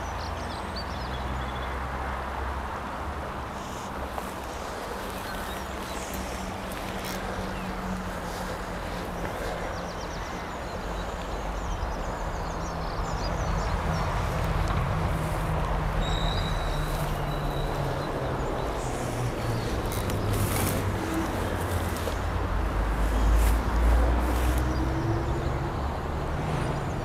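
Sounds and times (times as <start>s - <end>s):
flowing river: 1.8s - 11.6s
faint bird chirps: 16.0s - 18.8s.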